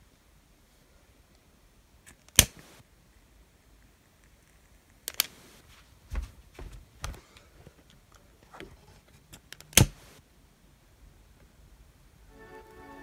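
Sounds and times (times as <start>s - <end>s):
sharp clicks: 2.1s - 2.6s, 4.5s - 5.5s, 9.4s - 10.1s.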